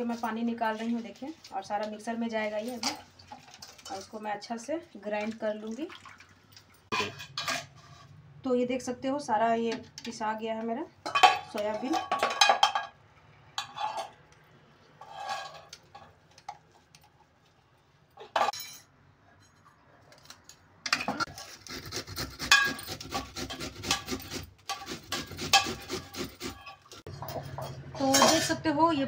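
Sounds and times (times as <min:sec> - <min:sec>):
grater rasping on metal: 0:21.2 - 0:27.1.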